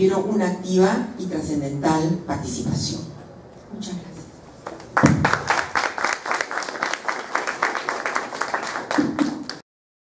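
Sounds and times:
audience applauding: 4.6s - 9.6s.

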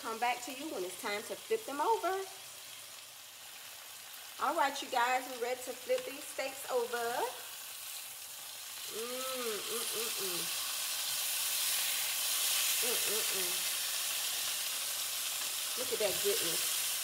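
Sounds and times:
steaks sizzling in a frying pan: 0.0s - 17.0s
tongs turning meat: 7.6s - 17.0s.

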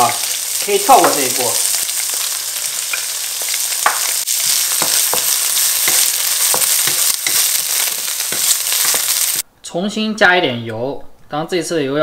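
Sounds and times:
food sizzling in hot oil: 0.0s - 9.4s.

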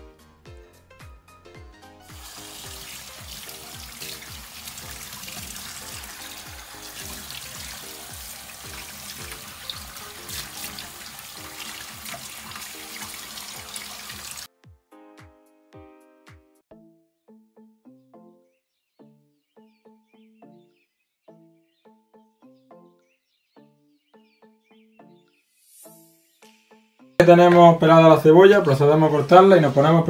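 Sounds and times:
background music with a beat: 0.0s - 16.6s
tap water running into a sink: 2.1s - 14.5s.

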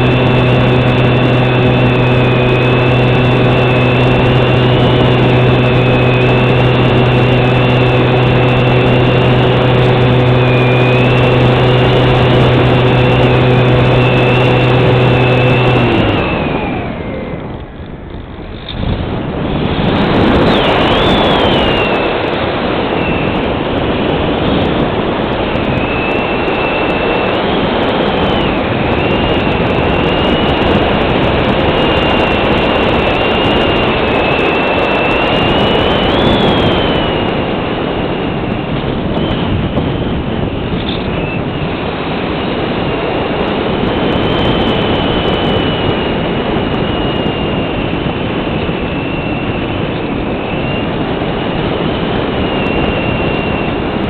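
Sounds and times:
electric motor and propeller hum: 0.0s - 54.0s
rushing wind: 0.0s - 54.0s
thin high whistle: 20.4s - 22.2s, 46.7s - 51.0s.

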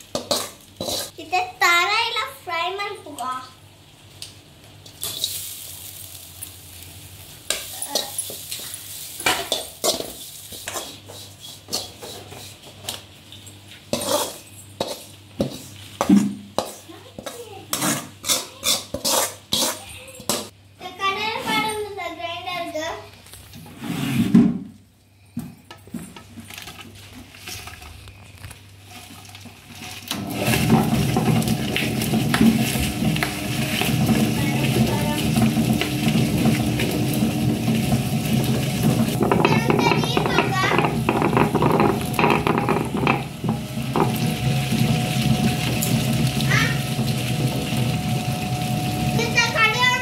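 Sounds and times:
steel spoon scraping pan: 0.1s - 1.2s, 13.9s - 15.7s, 16.6s - 19.9s
ingredients scraped into drum: 0.2s - 1.2s, 17.7s - 19.8s, 23.6s - 24.6s, 29.8s - 49.2s
wet grinder running: 30.1s - 50.0s.

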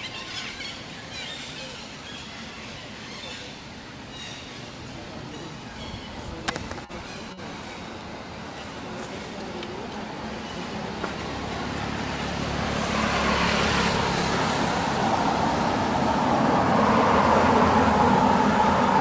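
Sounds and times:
road vehicle approaching: 7.6s - 19.0s.

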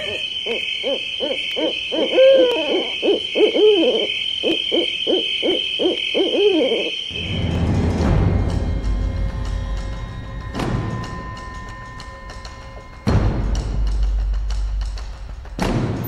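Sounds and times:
hooting calls: 0.0s - 7.3s.

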